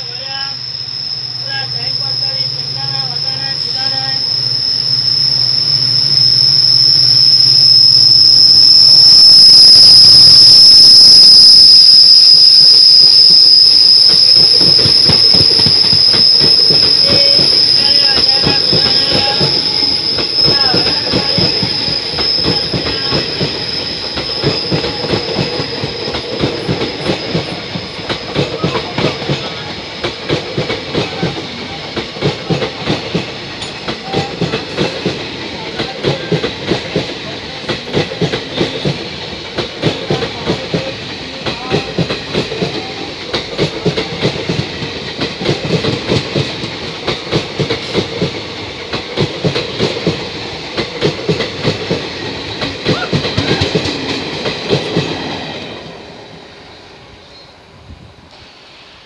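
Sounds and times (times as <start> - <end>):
high wheel squeal: 0.0 - 43.1
train wheels clacking over rail joints: 14.4 - 55.4.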